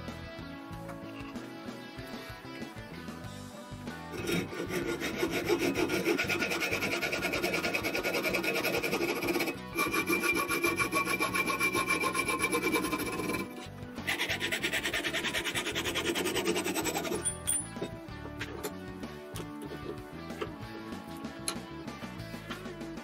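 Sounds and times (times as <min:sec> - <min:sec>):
hacksaw cutting metal: 0:04.1 - 0:18.8.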